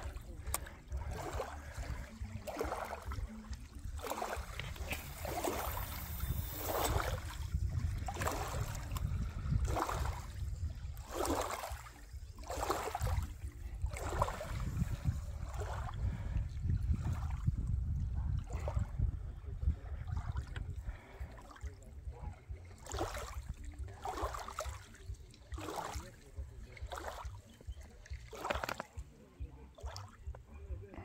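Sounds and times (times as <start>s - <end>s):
steady low rumble: 0.0s - 22.8s
river water lapping: 0.0s - 31.0s.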